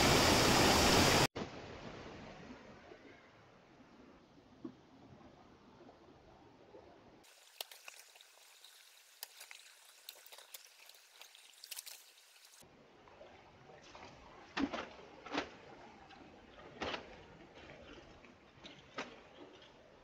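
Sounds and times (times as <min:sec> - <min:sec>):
stream trickling over stones: 0:07.2 - 0:12.6.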